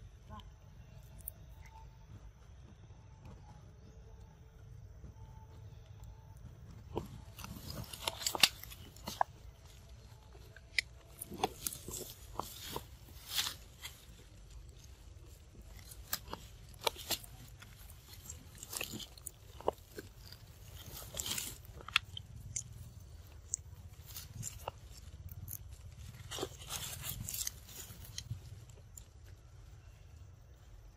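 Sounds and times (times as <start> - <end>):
monkey chewing leafy stems: 6.8 - 29.8
stems snapping and crunching: 6.9 - 29.4.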